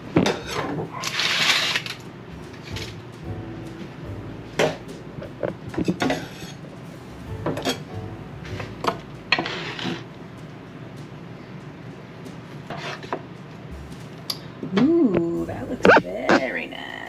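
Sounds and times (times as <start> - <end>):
cutlery and dishes clinking: 5.4 - 6.6, 7.5 - 7.9.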